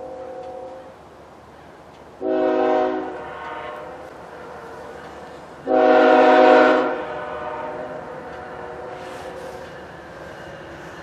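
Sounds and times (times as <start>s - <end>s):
locomotive chime horn blasts: 0.0s - 0.9s, 2.2s - 9.0s.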